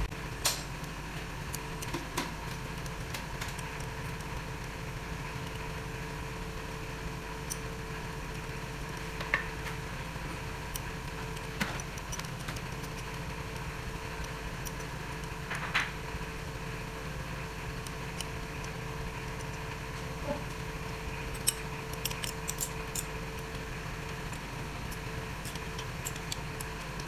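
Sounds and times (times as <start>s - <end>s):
steady background hum: 0.0s - 27.0s
metallic socket wrench clicks: 21.3s - 23.1s.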